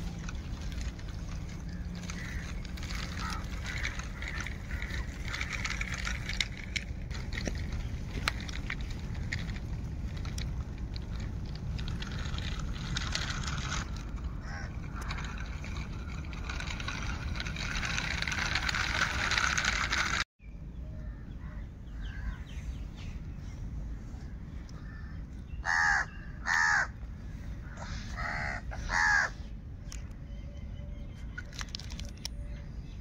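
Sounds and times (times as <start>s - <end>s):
crow cawing: 2.0s - 5.8s, 14.4s - 15.4s, 24.8s - 27.0s, 27.6s - 29.4s.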